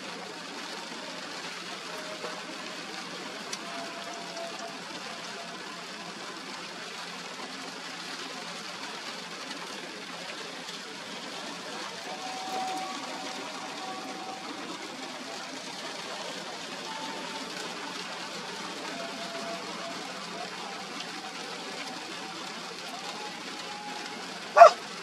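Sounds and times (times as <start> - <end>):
rain hissing: 0.0 - 25.0
wind: 0.0 - 25.0.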